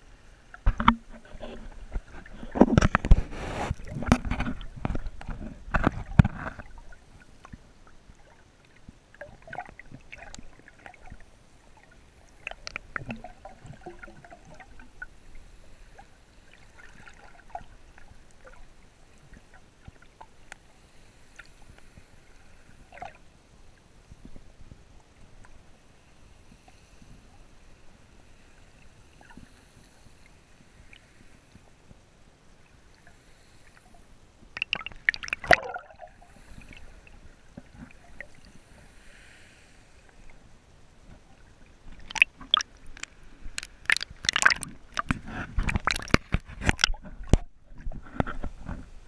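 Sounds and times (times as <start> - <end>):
muffled underwater wash: 0.0 - 49.0
water sloshing and gurgling: 0.3 - 23.4, 32.5 - 39.0, 40.0 - 49.0
splashing and knocks: 42.0 - 48.5.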